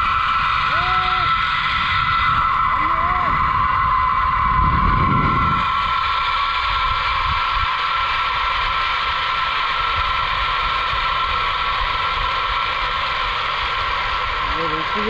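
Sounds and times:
wind rumbling on microphone: 0.0s - 15.0s
zipline pulleys whining on cable: 0.0s - 15.0s.

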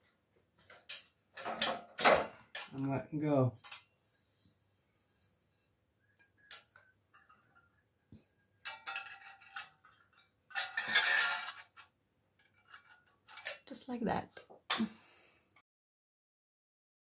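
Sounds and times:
glass scraping against metal: 10.6s - 11.7s.

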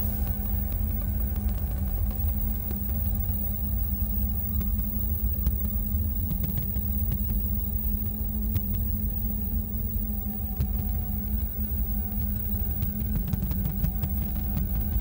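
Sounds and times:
low rumbling drone: 0.0s - 6.2s
constant hum: 0.0s - 15.0s
faint clicks and crackles: 0.0s - 15.0s.

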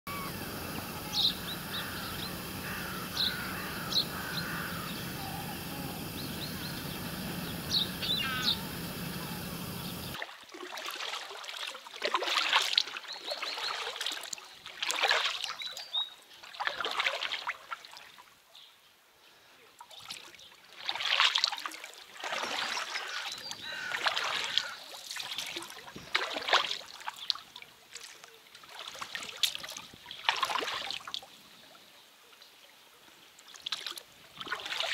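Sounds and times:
birds chirping: 0.1s - 10.2s
steady outdoor hiss: 0.1s - 10.2s
oars splashing in water: 0.1s - 15.8s, 16.4s - 18.0s, 19.9s - 31.3s, 33.5s - 34.9s.

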